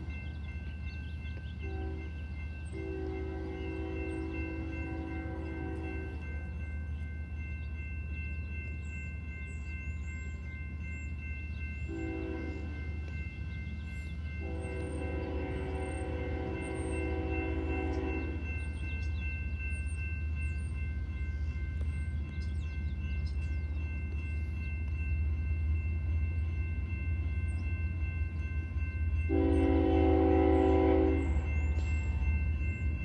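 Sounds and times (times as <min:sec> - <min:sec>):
distant train horn blasts: 0:01.4 - 0:06.7, 0:11.8 - 0:13.3, 0:14.3 - 0:19.3, 0:28.8 - 0:33.0.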